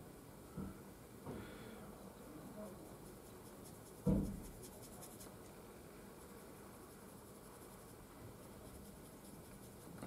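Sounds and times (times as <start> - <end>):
paintbrush scratching and dabbing: 2.8 - 10.0
dull thump: 4.0 - 4.6.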